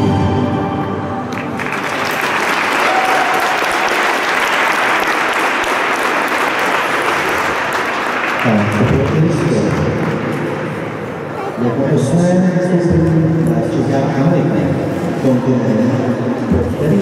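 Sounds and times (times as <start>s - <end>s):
audience applauding: 1.2s - 10.9s.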